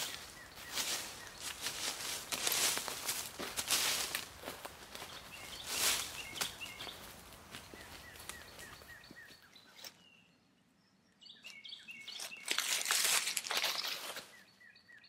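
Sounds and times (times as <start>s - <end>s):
dry leaves crunching underfoot: 0.0s - 9.2s, 12.1s - 14.4s
birds chirping: 0.0s - 15.0s.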